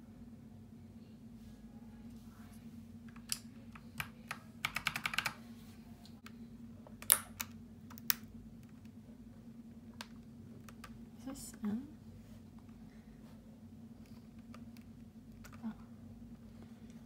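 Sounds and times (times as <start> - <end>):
mechanical keyboard keys clicking: 3.2 - 5.4.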